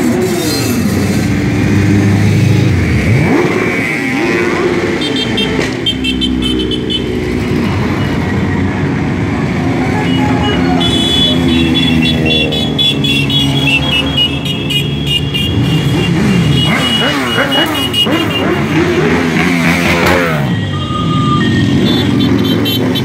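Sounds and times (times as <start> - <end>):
motorcycles riding past: 0.9 - 23.0
high-pitched horn beeps: 10.0 - 23.0.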